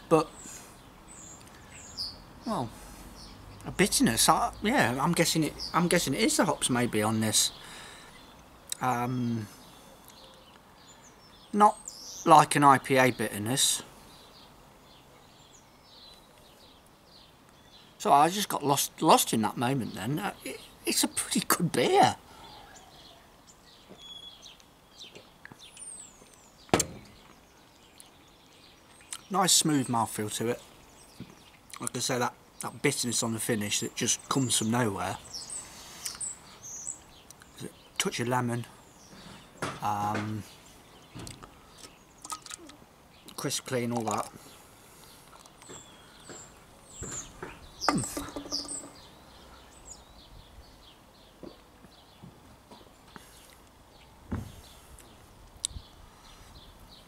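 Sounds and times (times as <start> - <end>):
faint birdsong chirps: 0.0 - 57.0
sharp knock: 26.7 - 27.1.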